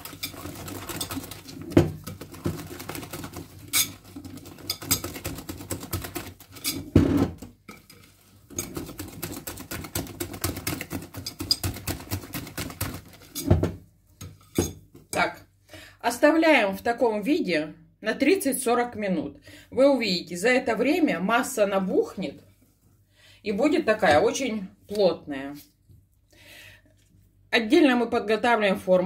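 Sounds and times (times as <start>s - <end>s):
whisk clicking against glass bowl: 0.0s - 6.8s, 8.5s - 13.4s.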